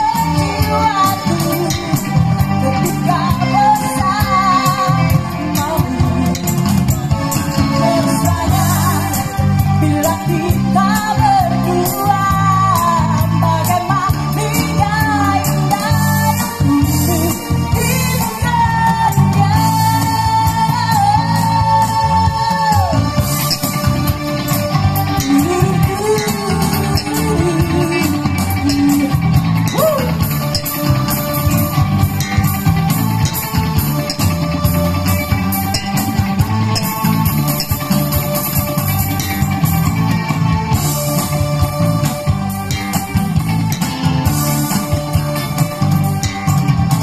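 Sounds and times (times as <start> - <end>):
person singing: 0.0 - 23.2, 25.2 - 30.7
live band playing amplified music: 0.0 - 47.0.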